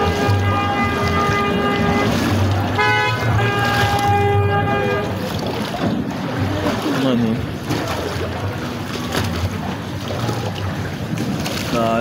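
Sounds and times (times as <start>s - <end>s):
horn-like pitched tone: 0.0s - 5.4s
water splashing and sloshing: 0.0s - 12.0s.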